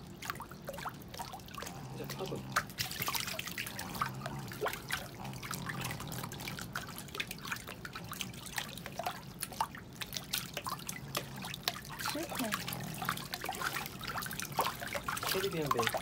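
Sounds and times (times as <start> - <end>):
faint low hum: 0.0 - 16.0
water splashing and dripping: 0.0 - 16.0.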